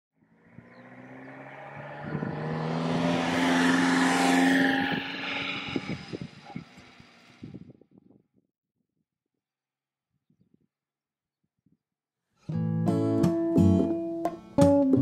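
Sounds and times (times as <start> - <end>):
small van passing by: 0.2 - 7.6.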